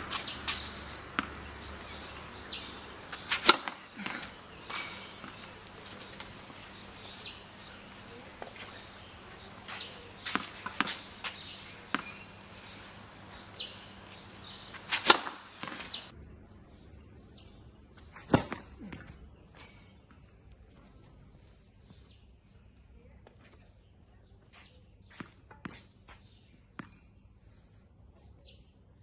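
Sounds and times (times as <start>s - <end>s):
racquet striking ball: 0.0s - 16.1s
tennis ball bouncing on hard court: 0.0s - 16.1s.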